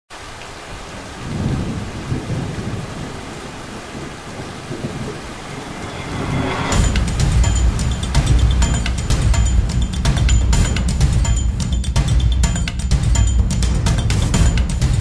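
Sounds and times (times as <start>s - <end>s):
rain hiss: 0.1s - 14.6s
rolling thunder: 1.2s - 10.2s.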